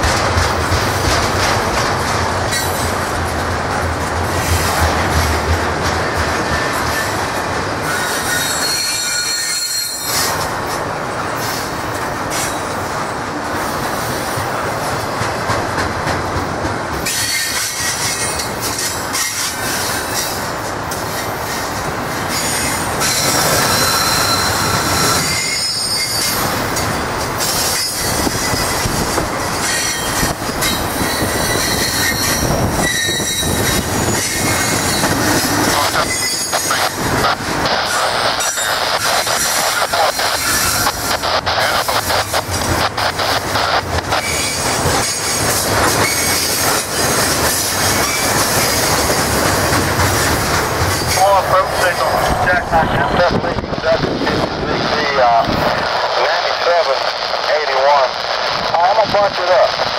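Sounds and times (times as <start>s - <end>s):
train wheels rumbling on rail: 0.0s - 59.9s
high-pitched wheel squeal: 7.8s - 10.3s, 22.3s - 26.4s, 29.6s - 35.2s, 36.0s - 36.8s.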